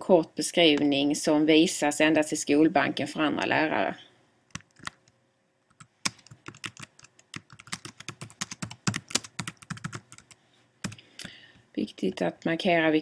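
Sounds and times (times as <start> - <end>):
typing on computer keyboard: 4.5 - 5.1, 5.7 - 11.0.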